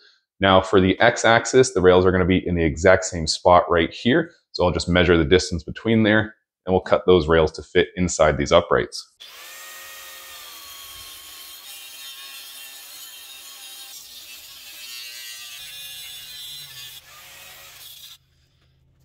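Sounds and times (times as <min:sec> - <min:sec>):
angle grinder cutting metal: 0:09.2 - 0:18.4.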